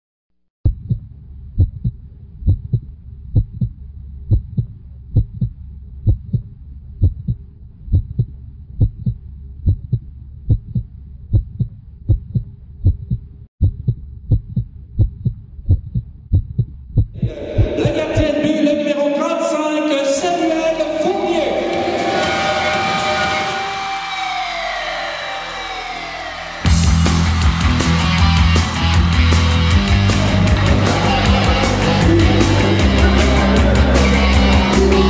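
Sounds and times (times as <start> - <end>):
heartbeat thumps: 0.6 - 18.5
full swelling sound: 20.3 - 35.0
steady low drone: 20.5 - 35.0.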